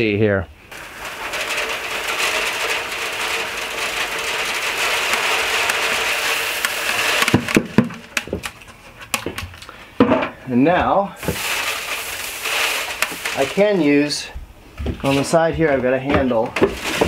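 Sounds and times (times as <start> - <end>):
grain pouring onto screen: 0.7 - 8.5, 11.2 - 14.3, 16.8 - 17.0.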